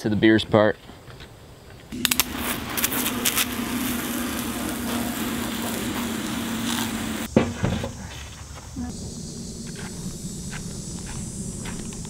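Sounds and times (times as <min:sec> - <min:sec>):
constant hum: 0:00.8 - 0:12.0
abrasive blaster rushing: 0:01.9 - 0:07.3.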